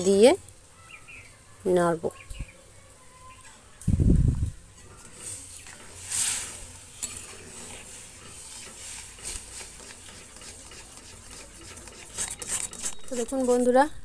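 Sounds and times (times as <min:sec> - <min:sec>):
metal spatula scraping a pan: 0:04.7 - 0:13.9.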